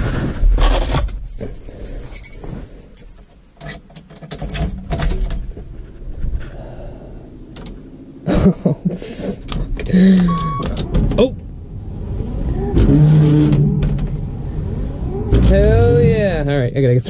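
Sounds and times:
keys jangling: 0.9s - 5.6s
steering column clicks and rattles: 0.9s - 5.6s.

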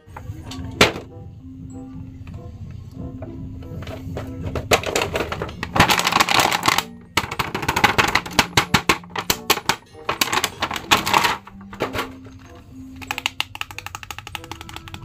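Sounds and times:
faint music: 0.0s - 15.0s
plastic packaging crinkling: 4.7s - 15.0s.

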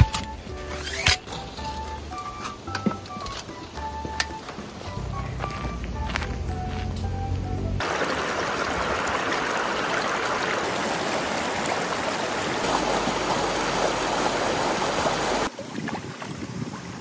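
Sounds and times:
stream rushing over rocks: 7.8s - 17.0s.

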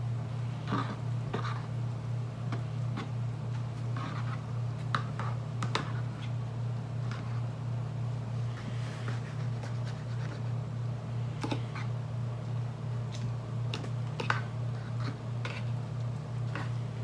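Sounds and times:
fork scraping plastic bowl: 14.2s - 15.8s.

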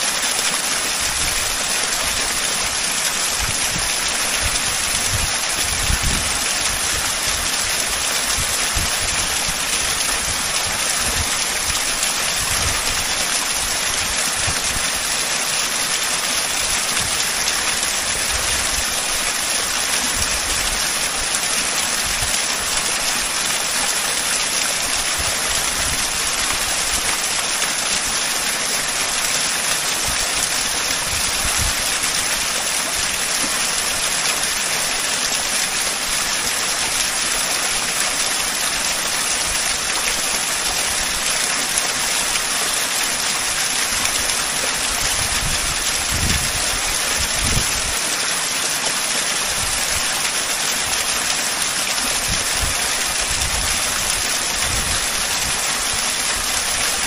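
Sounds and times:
waterfall rushing: 0.0s - 57.0s.

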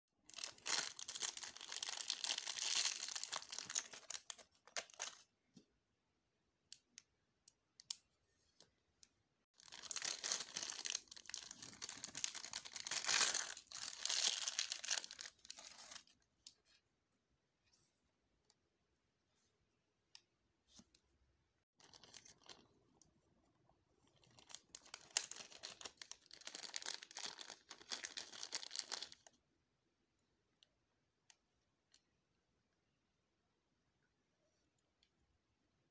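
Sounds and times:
plastic packaging crinkling: 0.2s - 5.2s, 9.6s - 16.1s, 24.0s - 29.3s.

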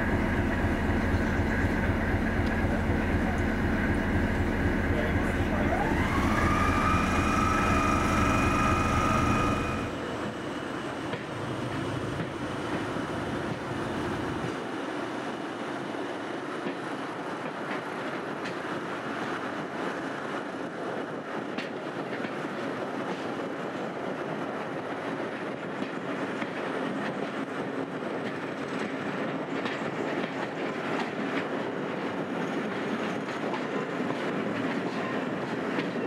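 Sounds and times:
locomotive engine whining: 0.0s - 14.5s
train coaches rumbling on rails: 0.0s - 36.0s.

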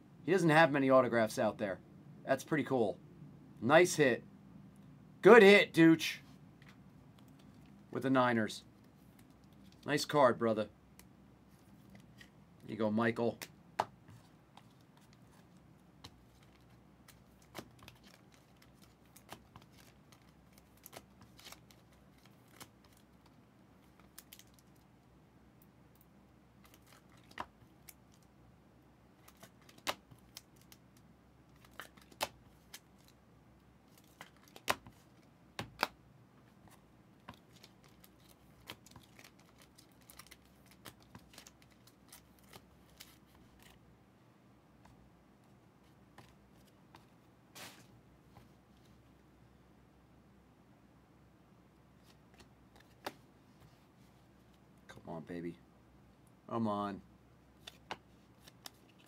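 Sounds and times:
trading cards clicking and snapping: 31.5s - 33.1s, 34.0s - 35.0s, 35.6s - 36.0s.

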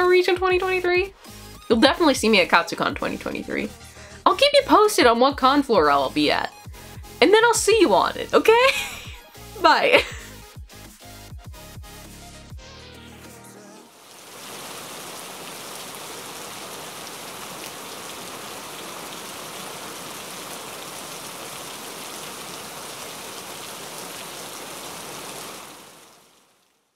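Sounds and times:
steady rain: 8.4s - 10.4s, 13.9s - 26.9s.

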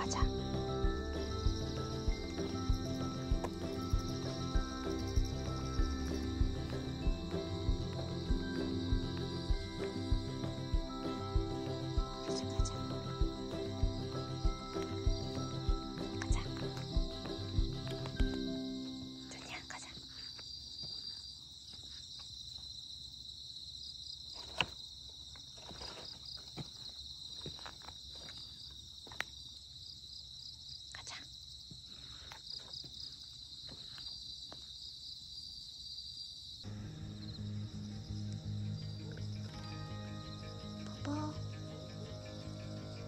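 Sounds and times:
background music: 0.0s - 19.8s, 36.7s - 43.0s
crickets chirping: 0.0s - 43.0s.

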